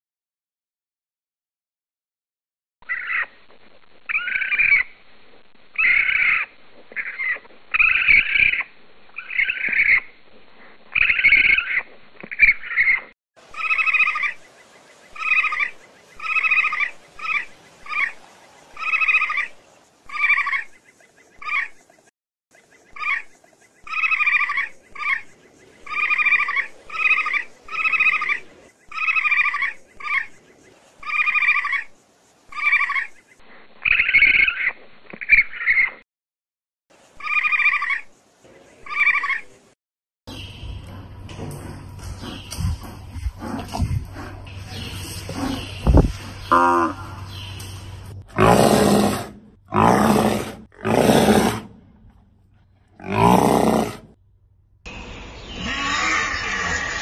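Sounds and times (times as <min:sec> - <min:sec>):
animal calling: 0:05.8 - 0:10.1, 0:15.1 - 0:20.8, 0:22.9 - 0:30.3, 0:37.2 - 0:38.1, 0:38.8 - 0:39.6, 0:40.3 - 0:54.1, 0:55.4 - 0:57.0.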